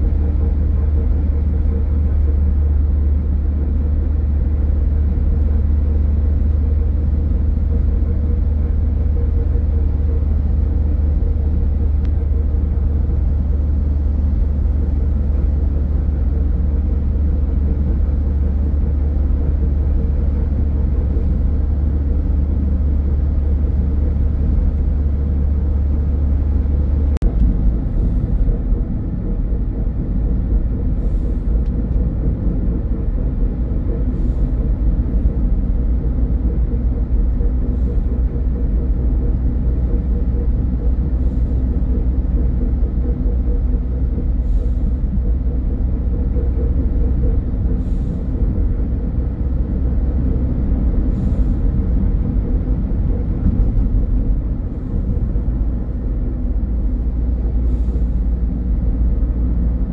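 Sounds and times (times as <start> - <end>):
car driving at speed: 0.0 - 59.9.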